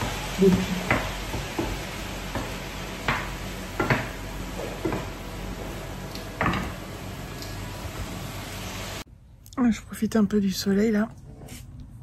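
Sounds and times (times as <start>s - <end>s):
food sizzling in a pan: 0.0s - 9.1s.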